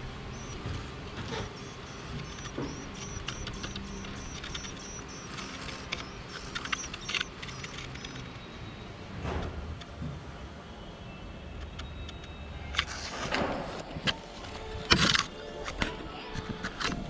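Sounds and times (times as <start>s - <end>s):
low background hum: 0.0s - 17.0s
birds chirping high and thin: 0.2s - 8.9s.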